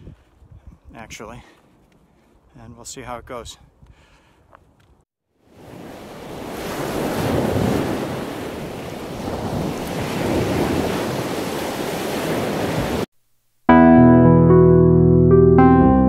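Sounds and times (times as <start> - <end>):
surf washing onto beach: 5.5 - 13.1.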